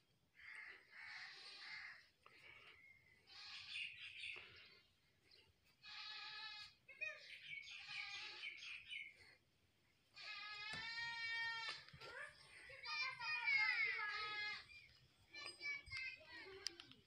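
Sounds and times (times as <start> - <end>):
bleat-like cries: 0.6 - 2.0, 3.3 - 4.0, 5.8 - 6.8, 7.6 - 8.6, 10.2 - 11.9.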